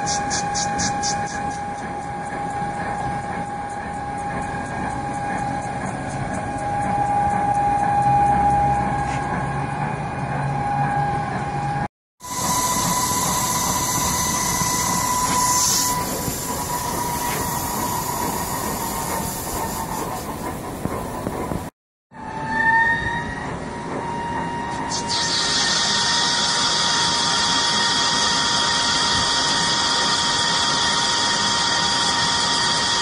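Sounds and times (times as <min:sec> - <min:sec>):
lathe running with steady whine: 0:12.2 - 0:20.2, 0:25.3 - 0:33.0.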